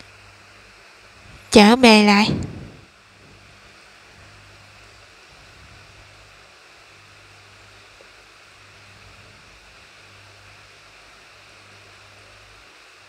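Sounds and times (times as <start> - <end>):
low hum: 1.2 - 3.6.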